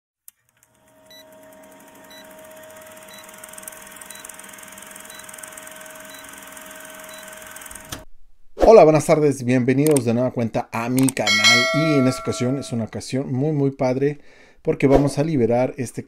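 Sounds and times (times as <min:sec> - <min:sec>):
film projector whirring: 0:00.4 - 0:08.0.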